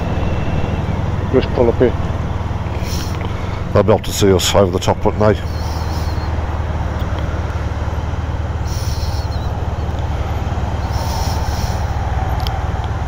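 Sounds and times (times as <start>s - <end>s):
motorcycle engine idling: 0.0s - 13.0s
short hisses: 2.7s - 3.6s, 5.4s - 6.3s, 8.6s - 9.6s, 10.8s - 12.0s.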